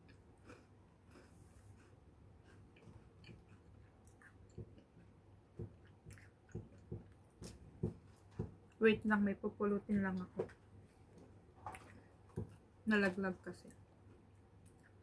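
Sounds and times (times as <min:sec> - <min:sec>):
chewing wafer bar: 0:00.0 - 0:07.2.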